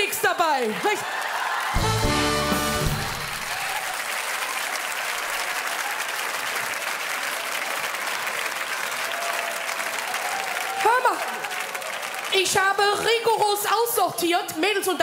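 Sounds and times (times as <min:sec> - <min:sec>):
audience clapping: 0:00.0 - 0:13.9.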